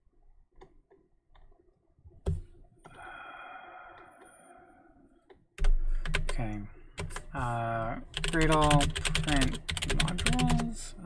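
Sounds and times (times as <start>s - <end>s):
computer keyboard keys clicking: 5.6s - 6.4s, 7.0s - 7.4s, 8.1s - 10.7s.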